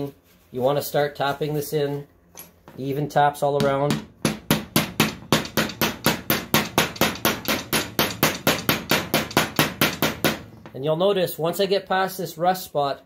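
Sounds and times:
hammer tapping steel bearing: 0:03.6 - 0:10.8.

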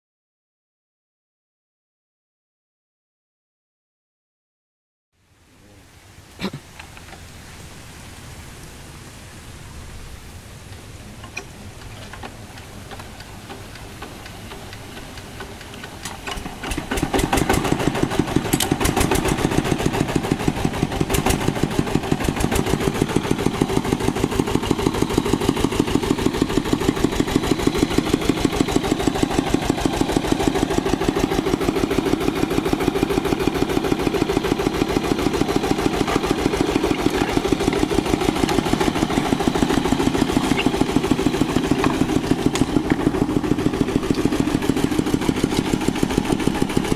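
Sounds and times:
diesel engine cranking and running: 0:11.1 - 0:46.9.

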